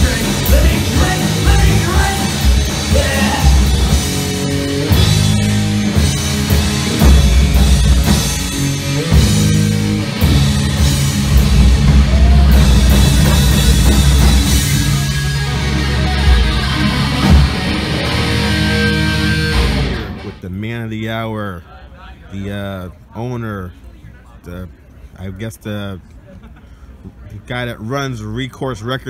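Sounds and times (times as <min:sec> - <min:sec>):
distorted electric guitar: 0:00.0 - 0:20.4
drum kit: 0:00.0 - 0:20.4
electric bass: 0:00.0 - 0:20.5.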